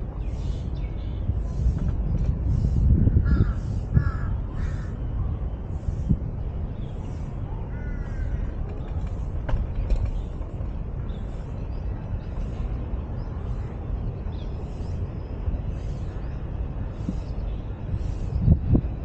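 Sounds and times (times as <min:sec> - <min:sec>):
steady low rumble: 0:00.0 - 0:19.0
crow cawing: 0:03.2 - 0:05.0, 0:07.7 - 0:08.4.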